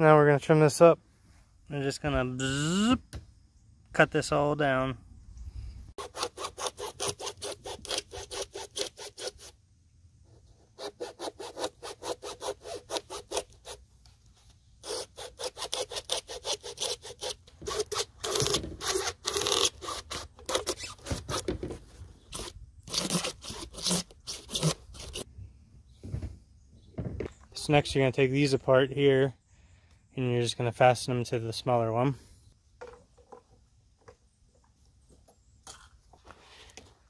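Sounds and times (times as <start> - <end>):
hacksaw cutting plastic: 6.0 - 9.6, 10.5 - 13.8, 14.8 - 21.6, 22.3 - 25.2.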